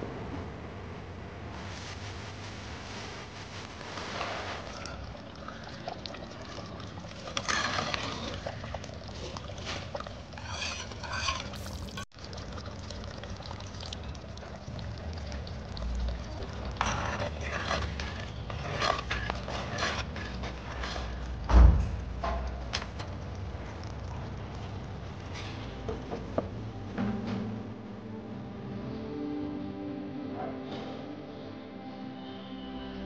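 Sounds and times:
spoon scraping metal pan: 0:10.4 - 0:12.0.

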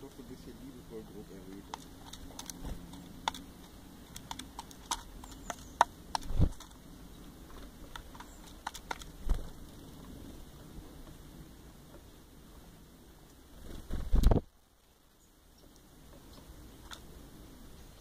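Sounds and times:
bird bill tapping plastic bowl: 0:04.1 - 0:06.3.

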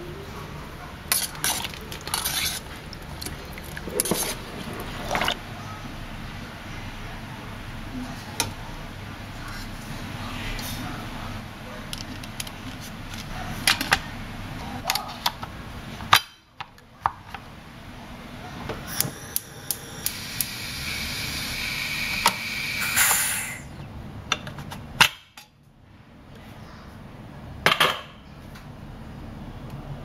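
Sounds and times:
pressure cooker steam whistle: 0:19.2 - 0:23.7.

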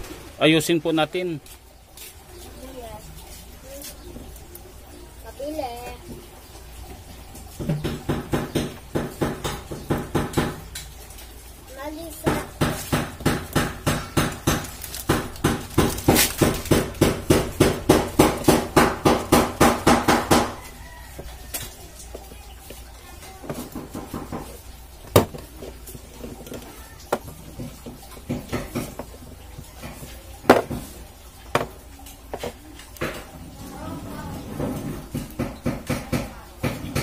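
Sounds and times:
scattered knocks: 0:07.6 - 0:10.8, 0:12.2 - 0:20.6, 0:23.4 - 0:33.3, 0:34.5 - 0:37.0.

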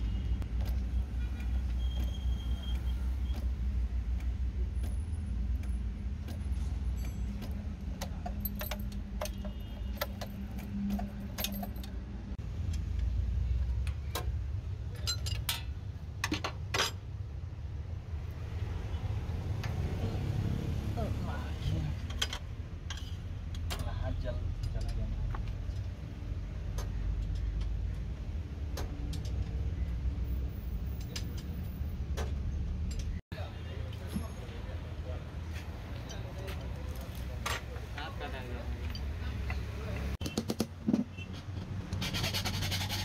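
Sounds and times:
metal parts and tools clinking: 0:00.6 - 0:12.4, 0:14.1 - 0:17.2, 0:22.0 - 0:26.0, 0:30.8 - 0:33.2.

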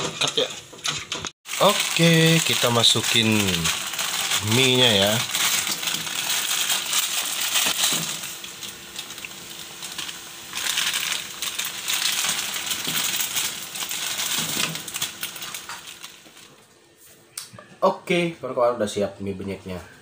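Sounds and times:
water boiling and bubbling: 0:01.4 - 0:16.6
plastic sachet crinkling: 0:01.5 - 0:16.5.

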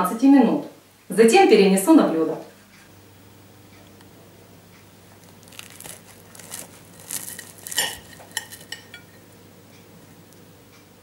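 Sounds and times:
crisp pastry crunching: 0:05.0 - 0:09.3
knife clinking on ceramic plate: 0:07.1 - 0:09.3.

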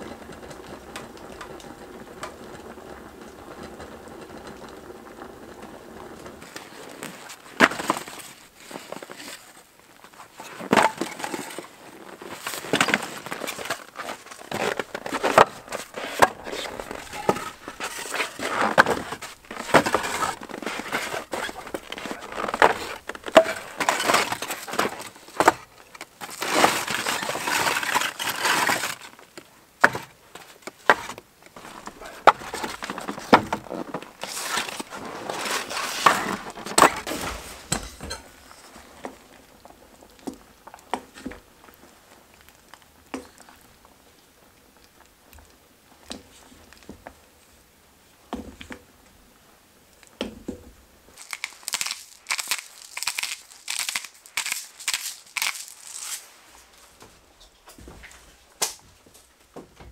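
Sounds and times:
short crunching sounds: 0:12.1 - 0:29.1, 0:51.2 - 0:58.9.

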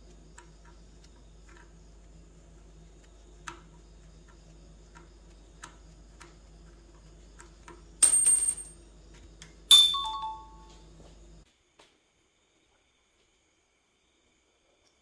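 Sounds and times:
low steady hum: 0:00.0 - 0:11.5
small metal pieces clinking: 0:08.0 - 0:08.8.

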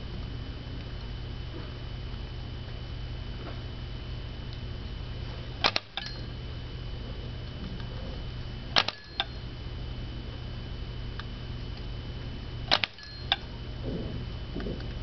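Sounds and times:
steady low hum: 0:00.0 - 0:15.0
lever mechanical clicks: 0:05.6 - 0:06.3, 0:08.7 - 0:09.4, 0:12.7 - 0:13.5.

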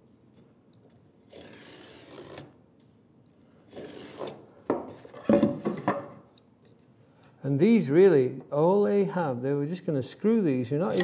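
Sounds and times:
knife scoring wood: 0:03.7 - 0:04.4.

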